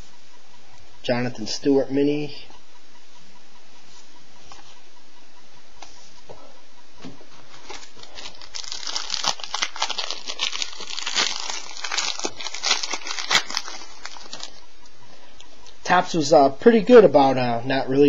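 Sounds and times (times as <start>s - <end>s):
plastic wrapper crinkling and tearing: 7.6s - 14.6s.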